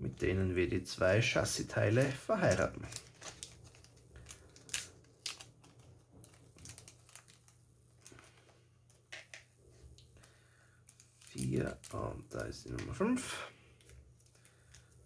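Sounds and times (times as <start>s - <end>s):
plastic bag crinkling: 1.9s - 9.4s, 10.0s - 13.2s.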